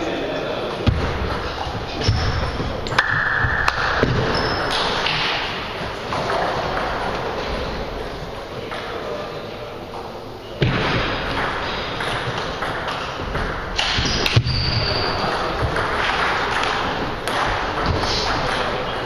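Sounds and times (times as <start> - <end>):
table tennis ball pinging: 2.0 - 5.5, 10.7 - 19.0.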